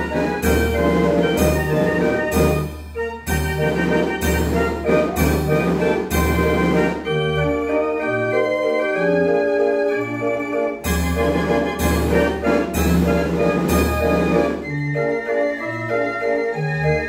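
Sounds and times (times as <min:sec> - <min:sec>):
drum beats: 0:00.0 - 0:07.1, 0:10.8 - 0:14.6
street organ pipes playing: 0:00.0 - 0:17.0.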